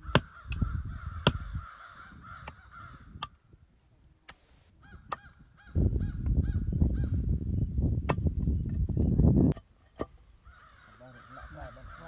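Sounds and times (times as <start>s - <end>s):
machete chopping wood: 0.0s - 0.6s, 1.2s - 1.4s
bird calling: 0.0s - 3.2s, 10.4s - 12.0s.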